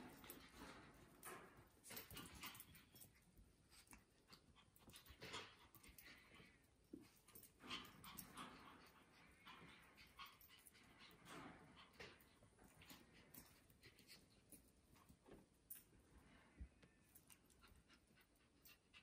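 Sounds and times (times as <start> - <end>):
dogs panting: 3.7 - 14.7.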